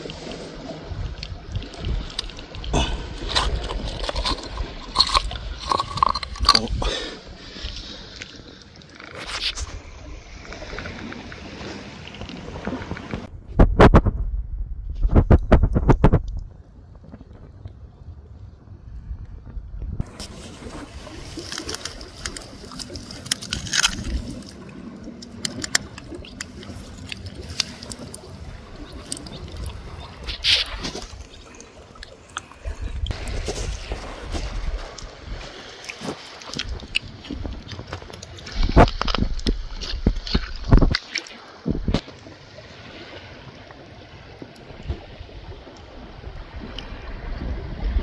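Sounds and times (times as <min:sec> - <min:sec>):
low wind rumble: 0:00.0 - 0:08.6, 0:09.5 - 0:48.0
water gurgling in mud: 0:01.0 - 0:07.6
sharp clicks and crackles: 0:21.4 - 0:28.3.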